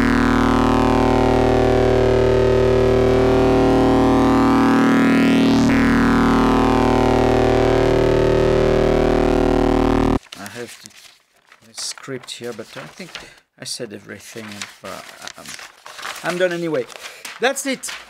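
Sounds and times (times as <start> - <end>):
synthesizer drone: 0.0 - 10.2.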